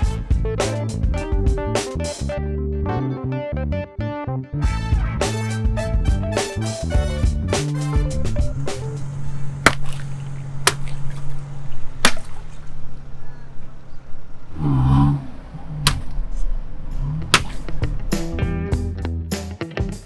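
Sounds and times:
water balloons bursting: 9.6 - 12.8, 17.2 - 17.8.

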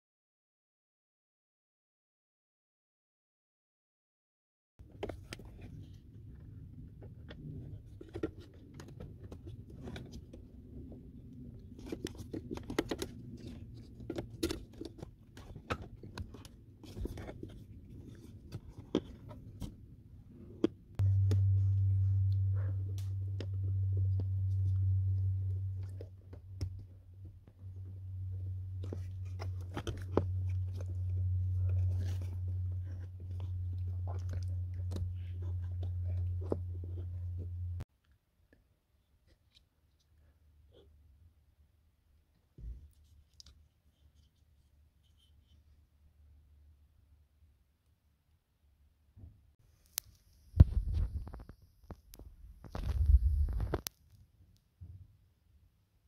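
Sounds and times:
plastic clicking and scraping: 4.8 - 19.8, 28.8 - 37.5
loud low hum: 21.0 - 37.8.

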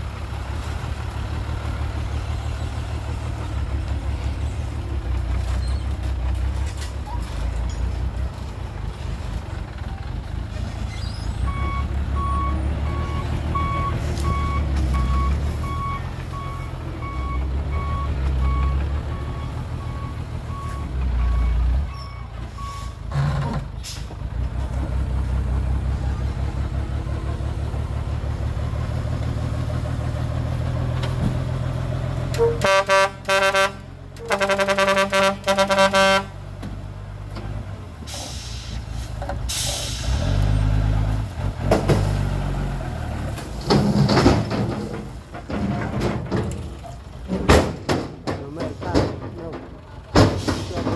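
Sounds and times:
diesel truck engine running: 0.0 - 50.9
reversing alarm beeping: 11.5 - 23.0
truck horn blasts: 32.3 - 36.4
air brake hiss: 38.1 - 40.4.

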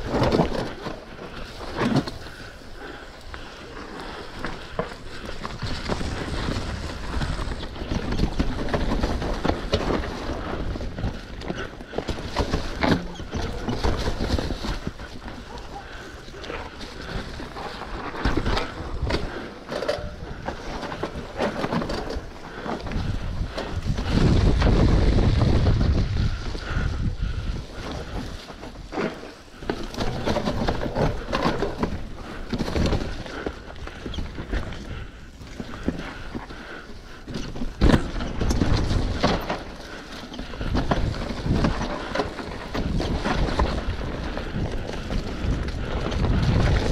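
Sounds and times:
bike rattling and knocking: 0.0 - 46.9
bike tyres rumbling over ground: 0.0 - 46.9
wind buffeting microphone: 22.0 - 28.9, 40.4 - 46.9.

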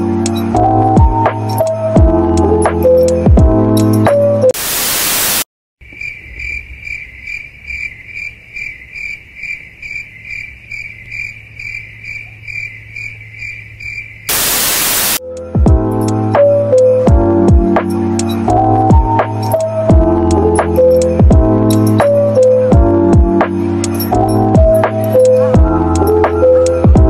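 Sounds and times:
background music: 0.0 - 4.6, 15.2 - 27.0
static hiss: 4.6 - 5.5, 14.3 - 15.2
crickets chirping: 5.8 - 15.2, 20.8 - 26.7.

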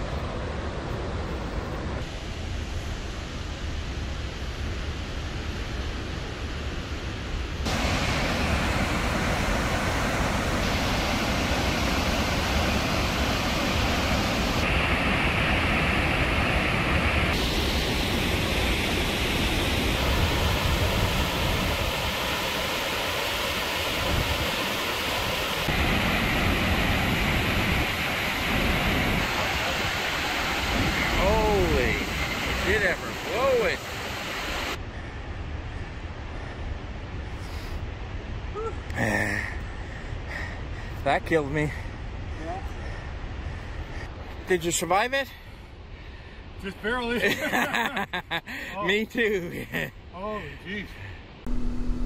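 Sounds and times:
waterfall rushing: 7.7 - 34.8
wind rumble on microphone: 30.6 - 33.2.

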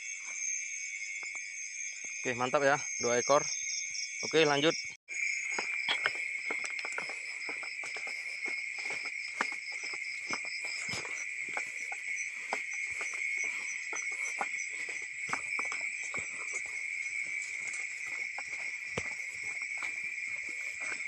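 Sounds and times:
crickets trilling: 0.0 - 21.0
faster pulsing insect call: 0.0 - 21.0
footsteps through wet undergrowth: 5.2 - 21.0.

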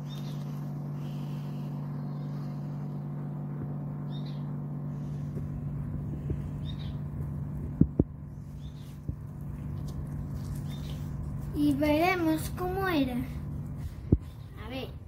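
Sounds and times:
low background hum: 0.0 - 15.0
faint bird chirps: 4.0 - 4.6, 6.5 - 7.1.

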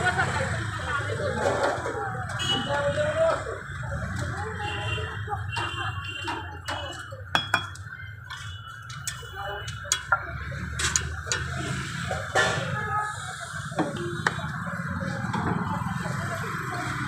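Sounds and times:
metal spoon clinking on pot: 6.3 - 10.2.

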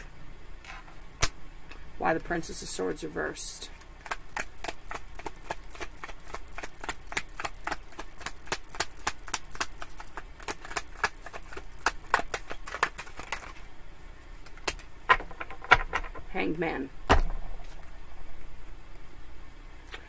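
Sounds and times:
cards being shuffled: 3.7 - 13.7, 14.4 - 16.2.

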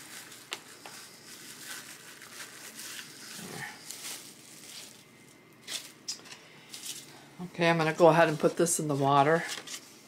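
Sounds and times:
cellophane crinkling: 0.0 - 7.1.

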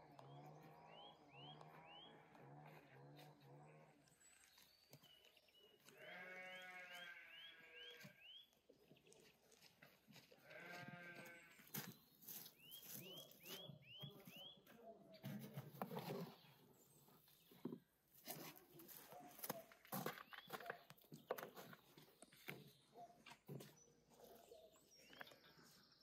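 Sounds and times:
livestock bleating: 5.8 - 8.3, 10.4 - 11.6.

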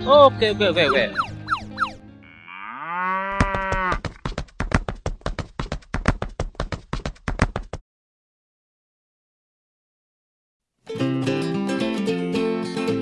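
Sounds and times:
whistle-like glides: 0.8 - 2.0
cow mooing: 1.8 - 4.0.

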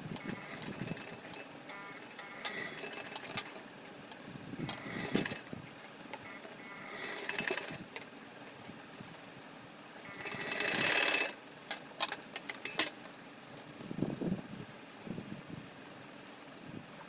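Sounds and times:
sewing machine stitching: 0.2 - 3.6, 4.6 - 5.5, 6.2 - 7.9, 10.0 - 11.4
sharp mechanical clicks: 0.2 - 8.1, 10.0 - 12.9.

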